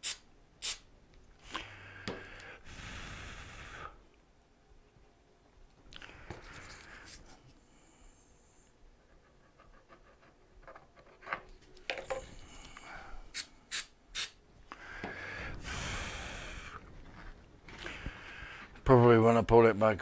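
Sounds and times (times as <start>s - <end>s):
aerosol spray can hissing: 0.0s - 0.9s, 13.3s - 14.4s.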